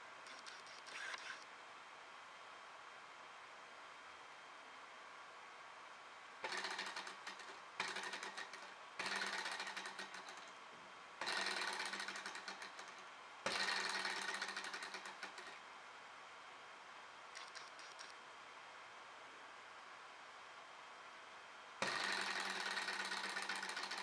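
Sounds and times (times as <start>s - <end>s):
model engine clattering clicks: 11.3s - 15.6s.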